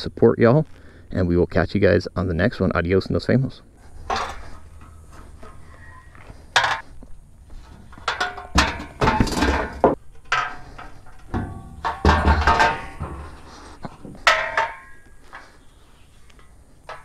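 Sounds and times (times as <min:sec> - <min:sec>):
metal ramp sections clanking: 0:03.9 - 0:06.9, 0:07.6 - 0:15.6.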